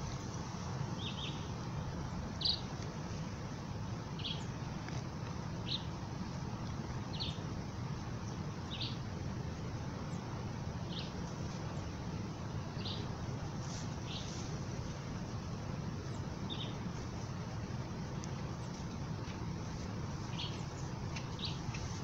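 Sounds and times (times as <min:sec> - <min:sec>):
steady background hiss: 0:00.0 - 0:22.0
bird chirping: 0:01.0 - 0:01.5, 0:02.4 - 0:02.7, 0:04.2 - 0:04.5, 0:07.1 - 0:07.4, 0:08.2 - 0:09.0, 0:10.9 - 0:11.9, 0:12.7 - 0:13.1, 0:16.1 - 0:16.8, 0:20.2 - 0:22.0.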